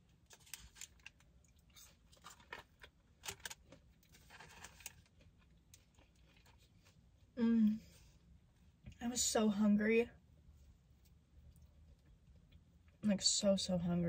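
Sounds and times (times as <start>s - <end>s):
paper wrapper crinkling: 0.1s - 6.7s
quiet chewing: 0.3s - 8.2s, 10.9s - 13.0s.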